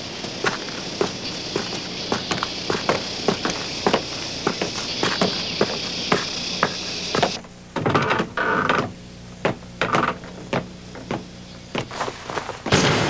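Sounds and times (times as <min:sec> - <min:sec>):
footsteps on wooden floor: 0:00.0 - 0:07.4, 0:08.8 - 0:12.7
steady high hiss: 0:00.0 - 0:13.0.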